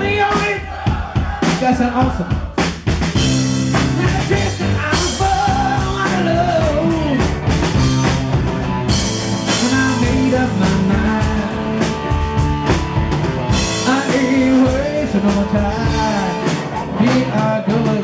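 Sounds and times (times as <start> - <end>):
drum kit with cymbal crashes: 0.0 - 18.0
piano: 3.0 - 18.0
electric guitar: 3.2 - 18.0
person singing: 3.8 - 7.4, 9.4 - 12.3, 13.7 - 18.0.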